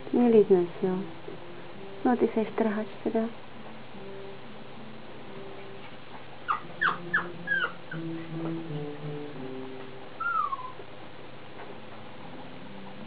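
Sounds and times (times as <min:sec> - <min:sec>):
puppy yelping: 0:06.4 - 0:08.1, 0:10.2 - 0:10.8
puppy whimper: 0:06.5 - 0:08.1, 0:10.2 - 0:10.8.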